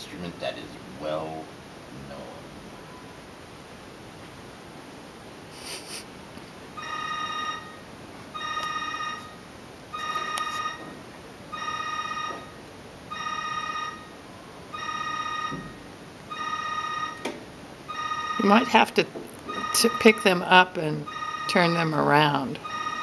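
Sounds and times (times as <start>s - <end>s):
electronic ringer pulsing tones: 6.8s - 10.9s, 11.5s - 17.2s, 17.8s - 23.0s.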